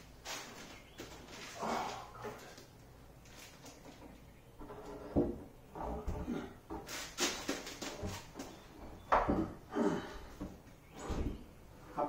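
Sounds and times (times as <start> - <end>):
wood scraping and knocking: 3.5 - 9.6.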